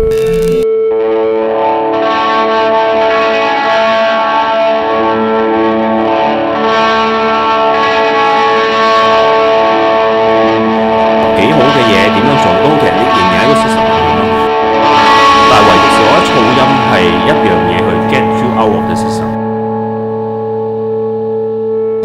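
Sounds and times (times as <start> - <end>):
distorted drone music: 0.0 - 0.7, 1.7 - 22.0
low pulsing note: 11.1 - 22.0.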